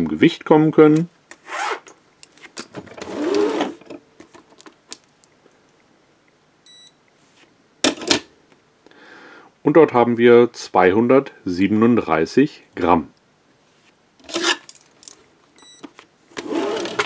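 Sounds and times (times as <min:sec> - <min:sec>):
short electronic beep: 0:06.7 - 0:07.0
handcuffs clinking and rattling: 0:14.2 - 0:15.2.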